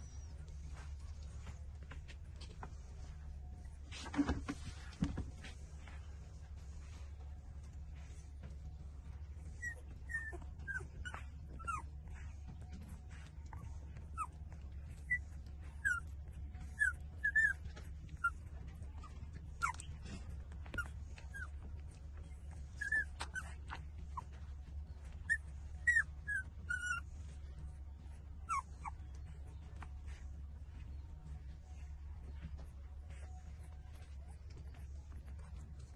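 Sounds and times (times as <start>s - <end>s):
puppies whimpering: 9.4s - 35.9s.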